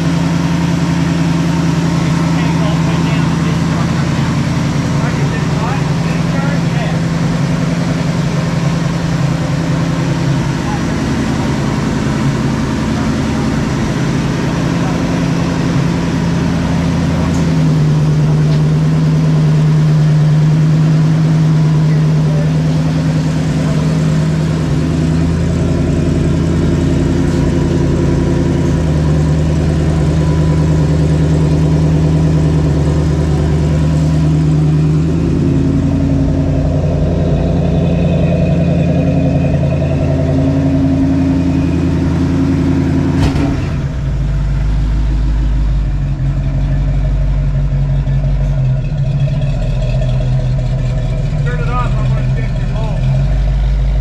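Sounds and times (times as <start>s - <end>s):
car engine idling: 0.0s - 54.0s.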